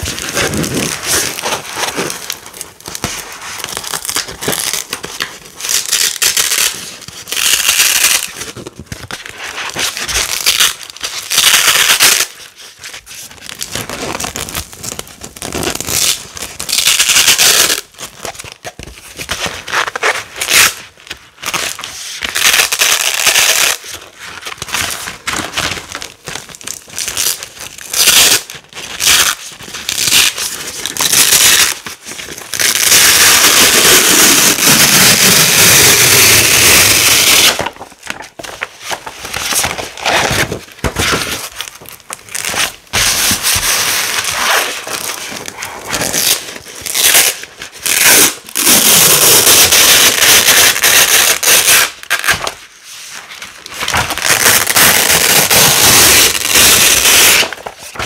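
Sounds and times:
velcro ripping apart: 0.0s - 5.0s, 5.6s - 8.6s, 9.8s - 12.4s, 13.9s - 18.0s, 21.5s - 23.9s, 27.1s - 31.8s, 32.4s - 37.8s, 42.1s - 52.6s, 53.9s - 58.0s.

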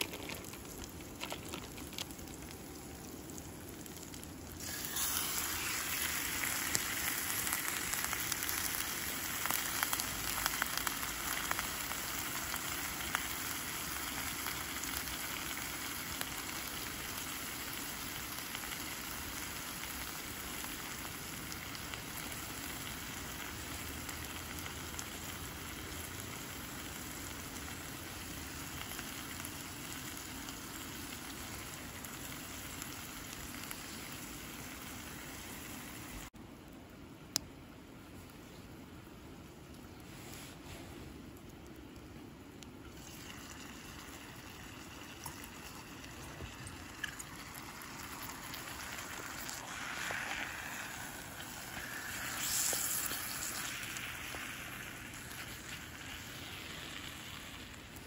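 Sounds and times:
oil spitting and crackling: 0.0s - 36.4s, 41.3s - 58.0s
steak sizzling in a frying pan: 3.4s - 36.3s, 46.2s - 57.9s.

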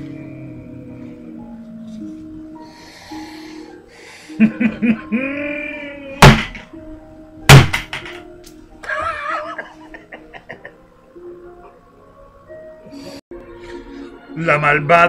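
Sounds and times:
quiet background music: 0.0s - 15.0s
loud whacks of club: 6.2s - 6.6s, 7.5s - 8.2s.

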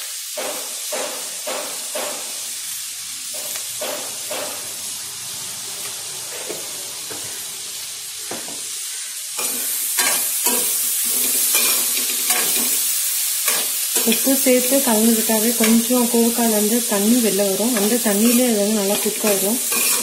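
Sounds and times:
vegetables sizzling in oil: 0.0s - 20.0s
spoon scraping a metal pan: 9.4s - 12.8s, 17.5s - 20.0s.

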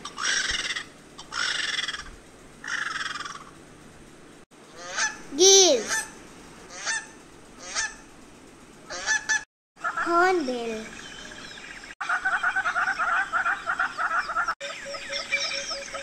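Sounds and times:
geese honking: 0.0s - 3.5s, 4.7s - 5.2s, 6.7s - 8.0s, 8.9s - 10.0s, 12.0s - 16.0s.

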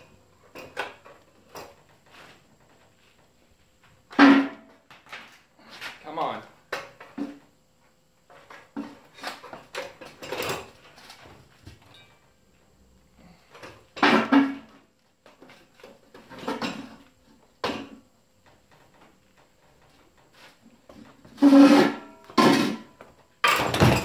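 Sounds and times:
metal clunks and scrapes: 4.1s - 6.0s, 8.3s - 12.2s, 13.5s - 24.0s.

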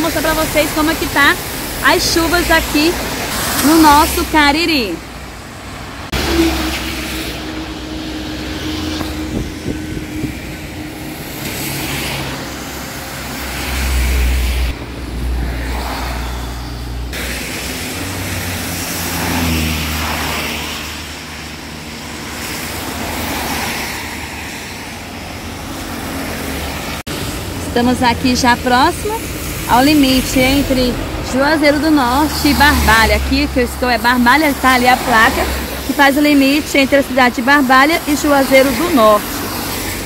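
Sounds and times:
tyres hissing on wet road: 0.0s - 40.0s
wind rumble on microphone: 8.9s - 11.4s.

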